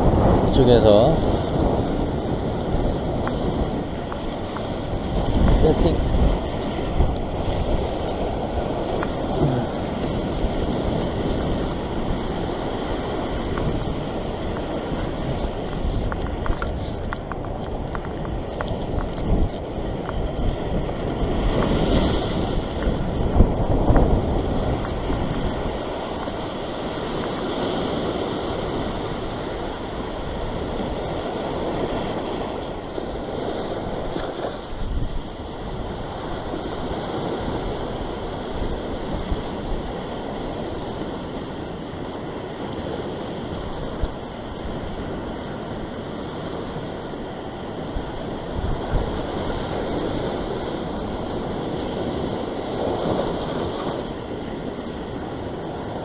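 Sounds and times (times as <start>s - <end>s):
sea surf breaking on rocks: 0.0s - 56.0s
wind buffeting microphone: 0.0s - 56.0s.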